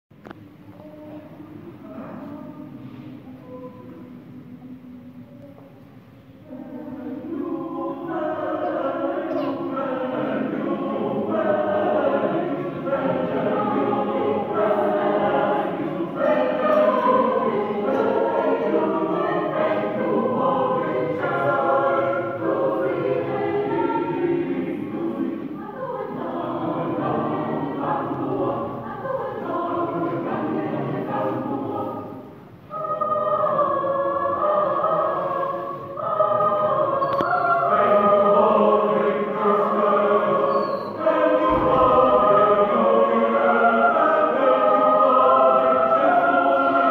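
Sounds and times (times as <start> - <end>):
choir singing in a church: 0.2 - 46.9.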